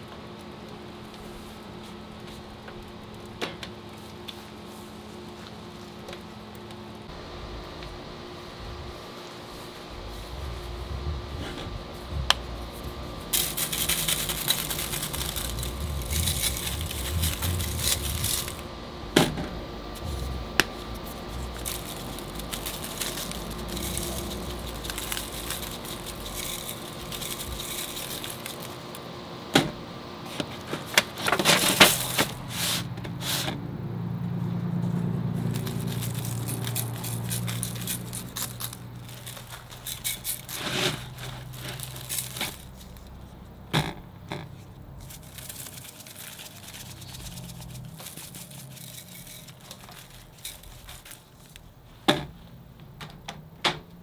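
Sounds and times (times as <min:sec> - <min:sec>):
faint hum: 0:00.0 - 0:54.0
rustling: 0:08.5 - 0:29.0, 0:34.8 - 0:43.5, 0:44.2 - 0:52.4
rattling and scraping: 0:09.8 - 0:29.0, 0:30.6 - 0:33.6, 0:35.4 - 0:52.2.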